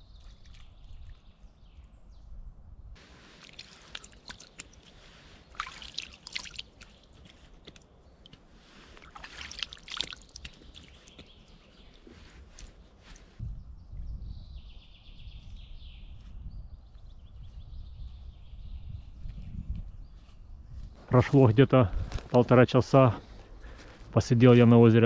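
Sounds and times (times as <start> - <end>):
water splashing and dripping: 0.0 - 1.3, 3.2 - 12.7.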